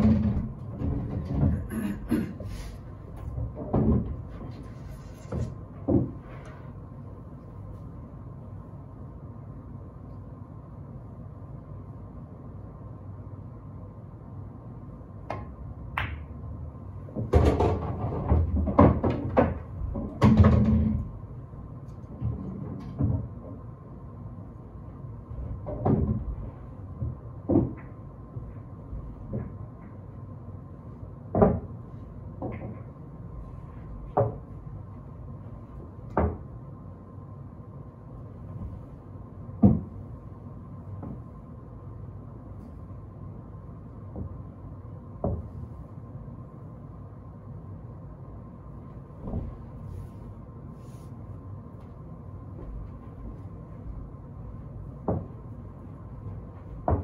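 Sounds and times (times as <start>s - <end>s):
pool balls clacking: 0.0s - 6.5s, 15.3s - 21.4s, 25.4s - 30.2s, 31.3s - 34.7s
cue striking ball: 15.3s - 16.4s.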